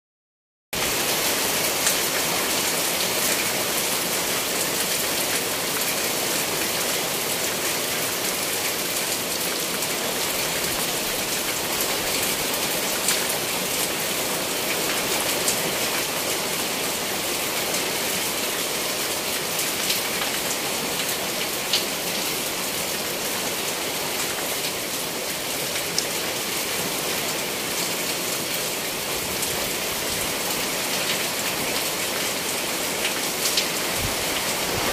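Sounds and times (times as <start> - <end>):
steady rain falling: 0.8 - 34.9.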